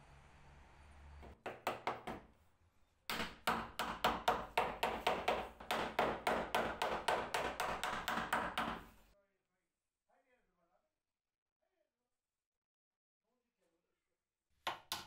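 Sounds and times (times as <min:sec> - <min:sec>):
hammer tapping wood: 0:01.2 - 0:02.2, 0:03.1 - 0:09.0, 0:14.7 - 0:15.0.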